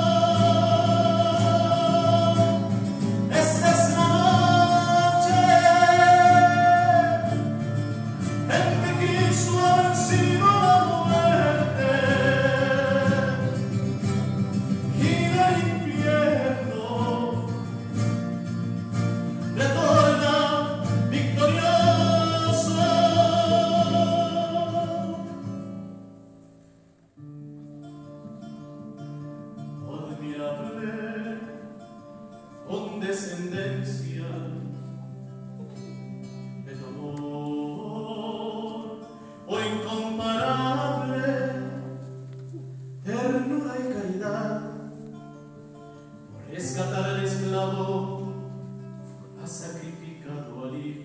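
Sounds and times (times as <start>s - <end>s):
hymn singing: 0.0s - 25.9s, 36.6s - 51.0s
guitar strumming: 0.0s - 51.0s.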